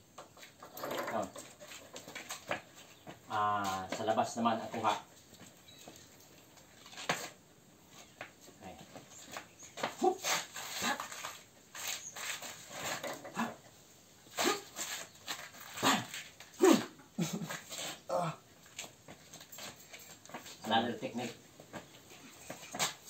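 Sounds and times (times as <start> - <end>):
scuffs and slaps of grappling: 8.1 - 13.5, 14.3 - 18.0, 21.8 - 23.0
short vocal cries: 14.3 - 14.8, 15.8 - 17.0.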